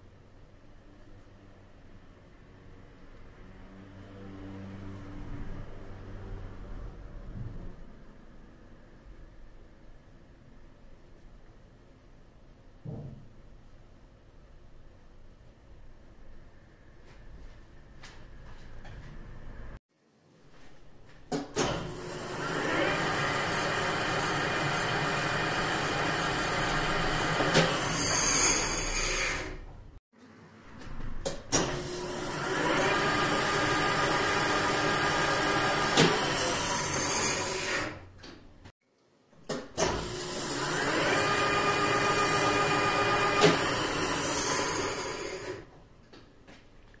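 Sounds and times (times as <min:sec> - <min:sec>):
lathe running with a whine: 0:21.9 - 0:29.5, 0:31.9 - 0:37.9, 0:40.0 - 0:45.6.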